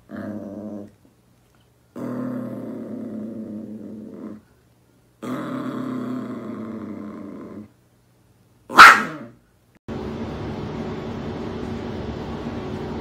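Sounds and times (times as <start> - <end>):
small dog growling: 0.0 - 1.0, 1.9 - 4.5, 5.2 - 7.8.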